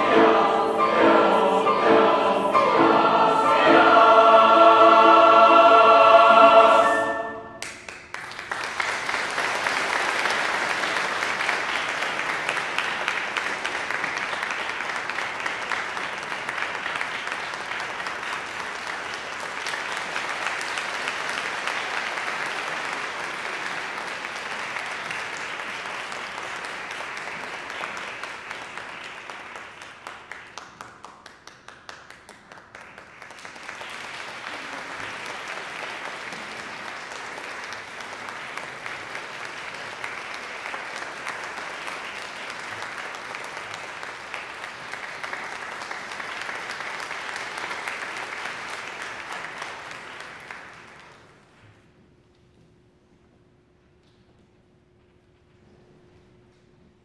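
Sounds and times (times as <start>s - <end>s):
audience applauding: 7.6s - 51.6s.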